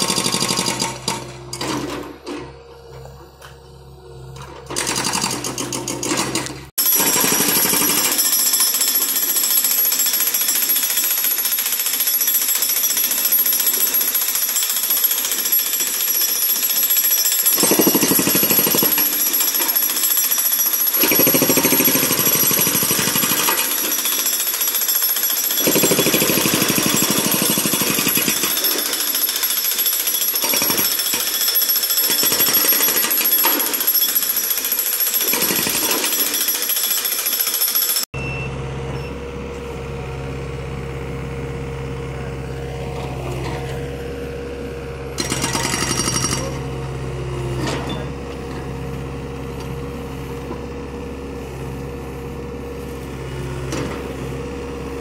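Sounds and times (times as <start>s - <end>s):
hydraulic breaker hammering concrete: 0.0s - 2.6s, 4.6s - 38.2s, 45.2s - 49.8s.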